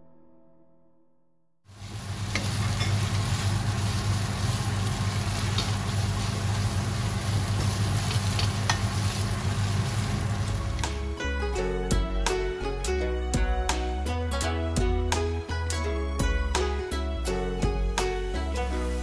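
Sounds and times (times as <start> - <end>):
noodles sizzling in a wok: 1.7 - 11.2, 18.6 - 19.0
wooden spatulas clicking on pan: 8.1 - 9.0.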